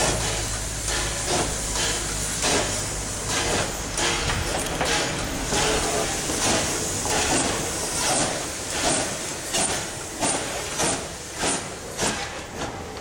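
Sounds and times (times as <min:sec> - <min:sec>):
steam locomotive exhaust chuffing: 0:00.0 - 0:13.0.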